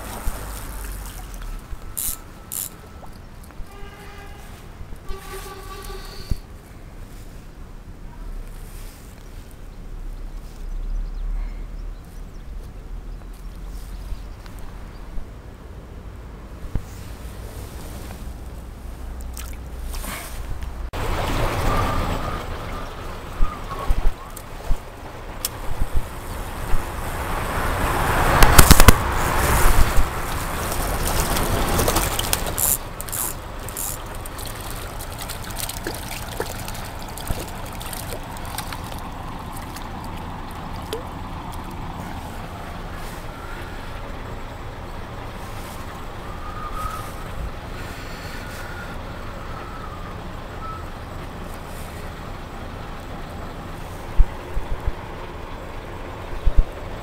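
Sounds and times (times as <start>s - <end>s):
river flowing over stones: 0.0s - 3.8s, 17.0s - 48.6s
loud rustling: 28.4s - 42.4s.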